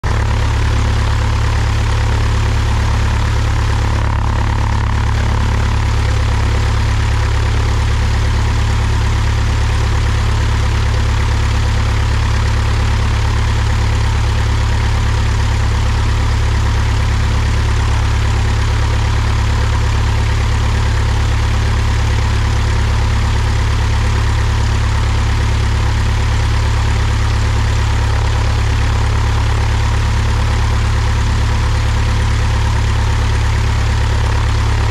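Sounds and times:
propeller plane engine idling: 0.0 - 34.9.

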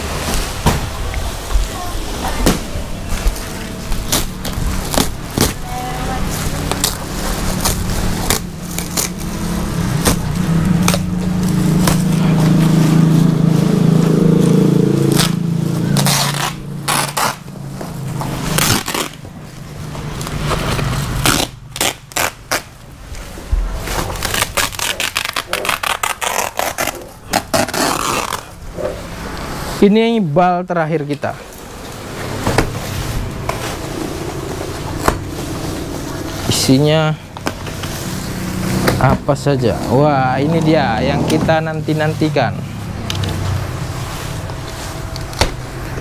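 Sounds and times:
plastic sacking and cardboard tearing: 0.0 - 30.7, 31.4 - 46.0
steady low hum: 21.0 - 46.0.

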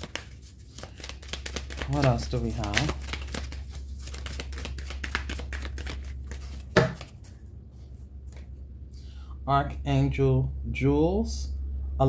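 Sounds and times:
cards being shuffled: 0.0 - 7.4, 8.3 - 8.5.

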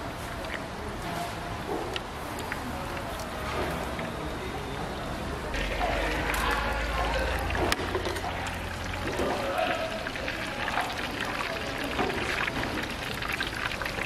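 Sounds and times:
food deep-frying in hot oil: 5.6 - 14.0.

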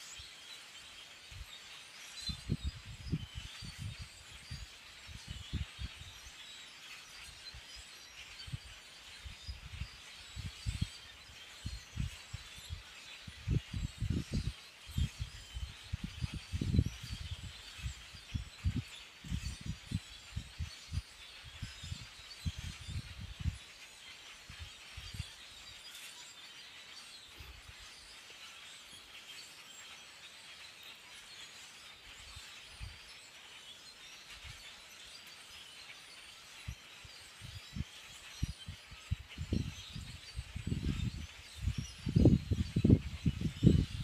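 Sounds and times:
flock of birds chattering: 0.0 - 44.0
wind buffeting microphone: 2.4 - 4.6, 5.2 - 6.1, 9.5 - 10.9, 12.7 - 23.6, 37.5 - 44.0.

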